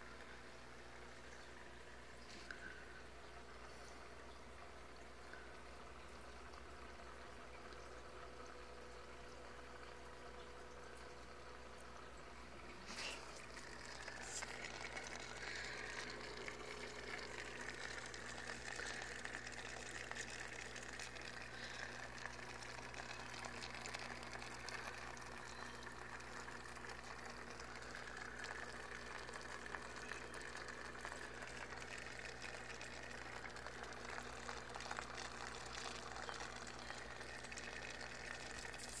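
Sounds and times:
aquarium water trickling and bubbling: 0.0s - 39.0s
low steady hum: 0.0s - 39.0s.

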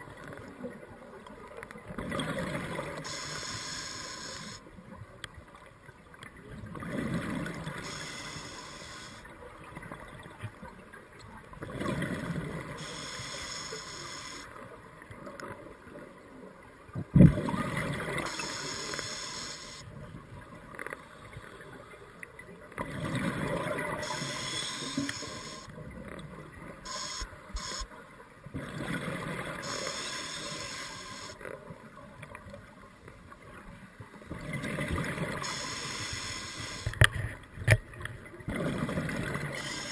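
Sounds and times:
diver breathing through regulator: 3.1s - 4.6s, 7.8s - 9.2s, 12.8s - 14.5s, 18.3s - 19.8s, 24.0s - 25.7s, 26.9s - 27.9s, 29.6s - 31.4s, 35.4s - 37.0s.

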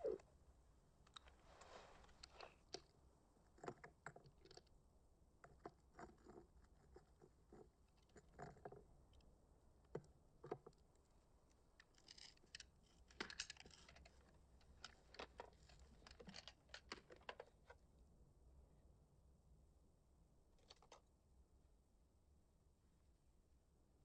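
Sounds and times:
faint small clicks and taps: 20.6s - 21.1s.

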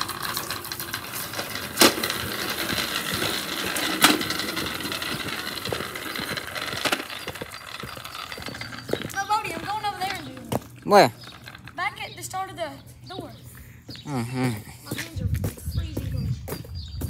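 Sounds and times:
plastic wheels rattling on concrete: 0.0s - 13.5s.

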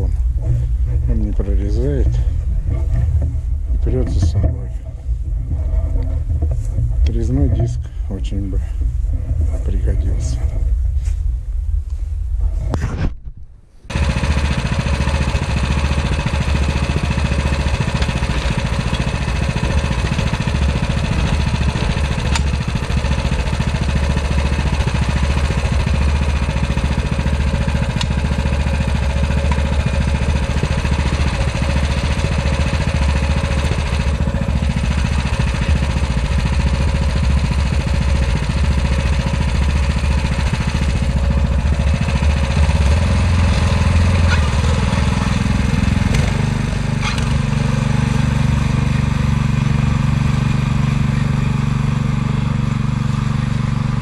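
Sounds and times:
walk-behind tractor engine running: 13.9s - 54.0s.

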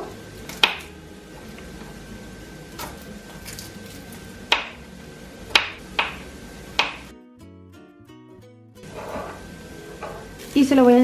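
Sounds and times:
music: 0.0s - 11.0s
knife chopping on wooden board: 0.5s - 0.9s, 4.5s - 4.8s, 6.8s - 7.1s.

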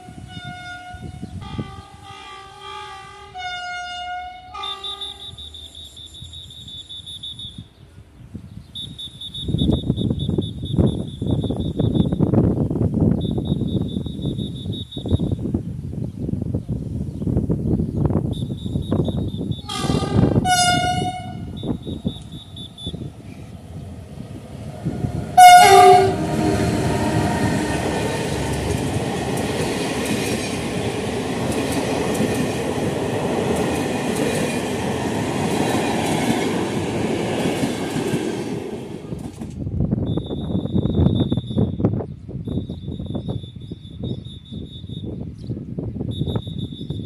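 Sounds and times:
train horn blasts: 0.0s - 5.6s, 19.6s - 23.1s, 24.8s - 28.9s
train wheel and rail noise: 0.0s - 47.0s.

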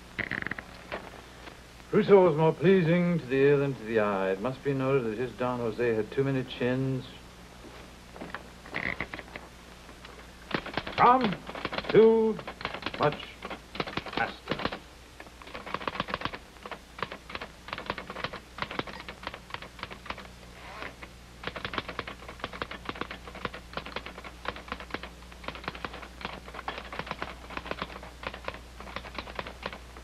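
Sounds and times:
faint low hum: 0.0s - 30.0s
typewriter keys clacking: 10.5s - 14.8s, 15.4s - 20.3s, 21.4s - 29.8s.

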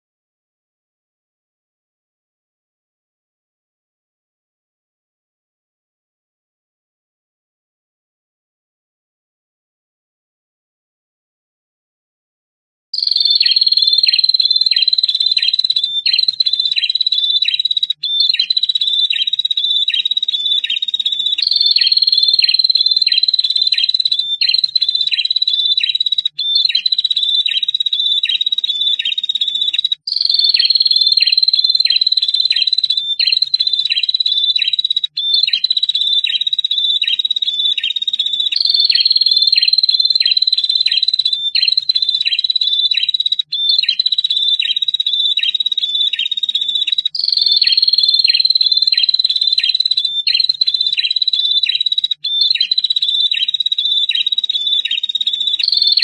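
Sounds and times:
birds calling with high trill: 13.0s - 56.0s.

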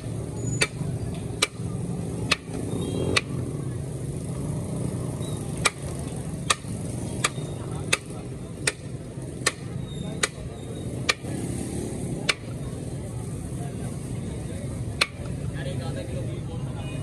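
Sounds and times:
sharp knocks: 5.6s - 10.4s.

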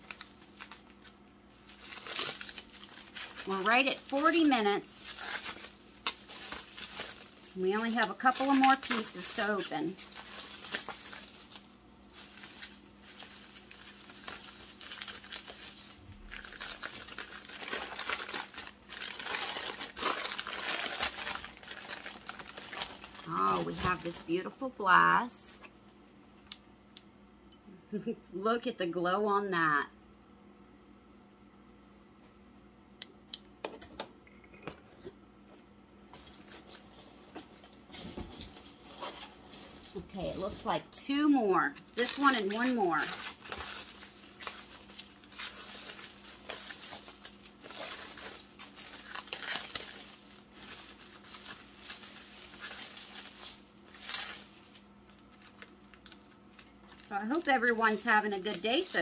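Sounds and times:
paper crinkling and rustling: 0.0s - 24.7s, 36.1s - 40.8s, 41.7s - 59.0s.

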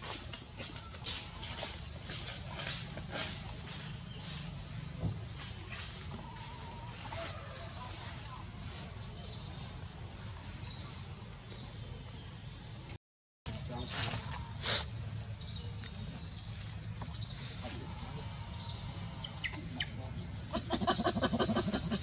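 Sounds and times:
birds chirping: 0.0s - 22.0s
insect chorus: 0.6s - 22.0s
baby monkey whimpering: 20.5s - 22.0s.

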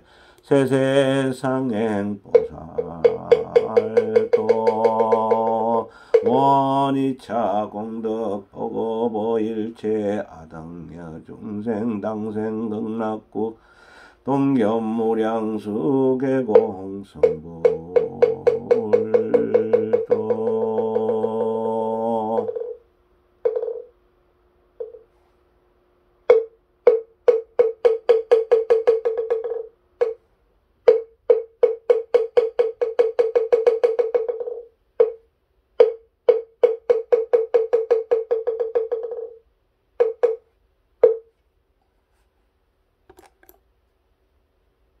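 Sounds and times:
wooden fish knocks and rolls: 23.5s - 23.9s.

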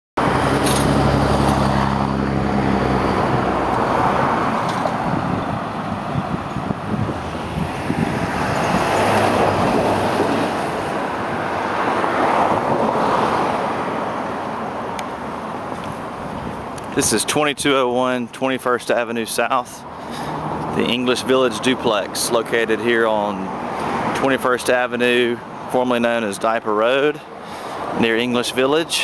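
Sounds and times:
low vehicle engine drone: 0.2s - 17.1s
cars passing: 0.2s - 29.0s.

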